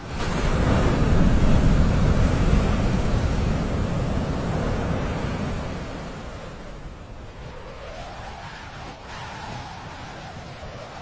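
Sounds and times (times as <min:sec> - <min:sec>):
breaking surf: 0:00.0 - 0:11.0
wind: 0:00.0 - 0:11.0.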